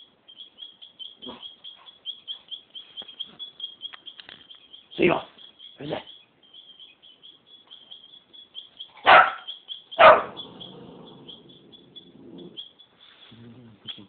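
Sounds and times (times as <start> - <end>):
puppy barking: 9.0 - 12.6.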